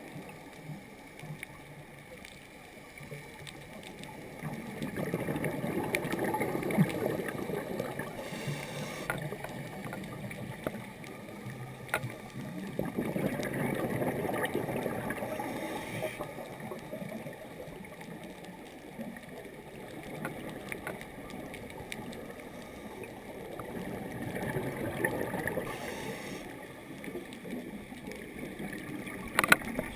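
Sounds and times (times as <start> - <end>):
faint clicks: 0.0 - 29.9
exhaled bubbles: 4.1 - 29.9
scuba breathing: 7.0 - 9.8, 12.5 - 16.5, 22.2 - 24.1, 25.1 - 26.6.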